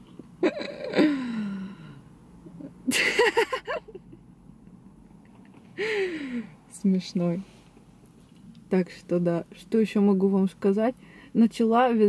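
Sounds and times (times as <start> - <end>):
woman laughing: 2.6 - 4.2.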